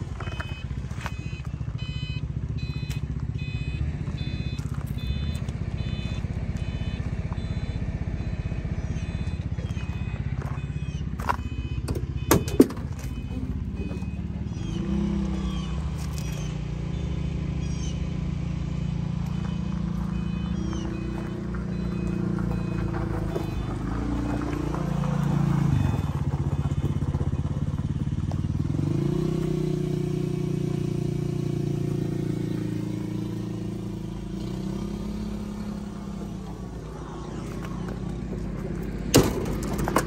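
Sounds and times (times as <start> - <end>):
truck engine idling: 0.0 - 29.1, 30.3 - 40.0
birds chirping: 4.1 - 29.3, 32.3 - 39.1.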